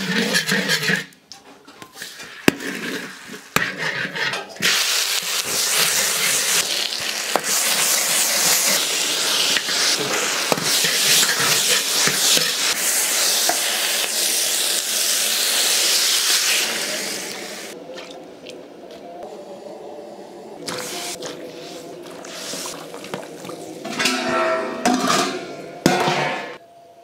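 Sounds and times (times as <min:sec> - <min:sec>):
chicken sizzling in hot oil: 0:04.6 - 0:17.8
metal ladle knocking on wok: 0:23.9 - 0:26.6.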